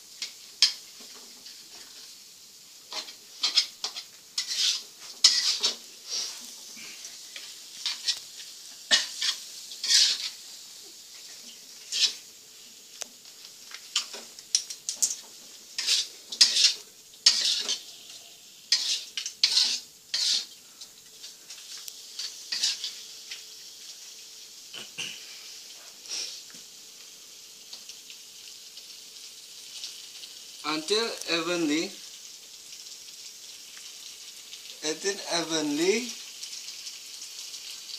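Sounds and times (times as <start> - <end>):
oil sizzling: 0.0 - 37.9
spatula scraping a pan: 2.9 - 10.4, 11.2 - 12.2, 15.0 - 20.6, 21.2 - 23.4.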